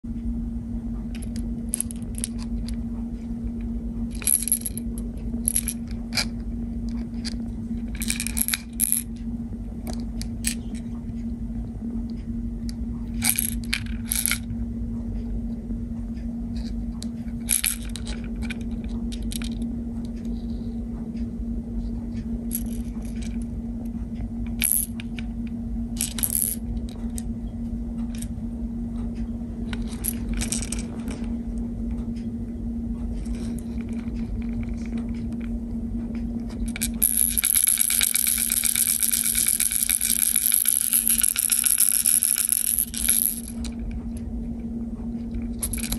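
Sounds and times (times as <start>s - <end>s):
steady low hum: 0.0s - 45.9s
fishing lure rattling: 36.6s - 43.8s.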